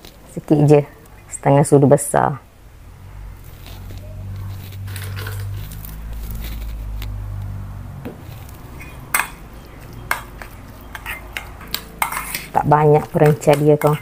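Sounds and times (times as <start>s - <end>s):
metal spoon clinking on steel bowl: 8.8s - 14.0s.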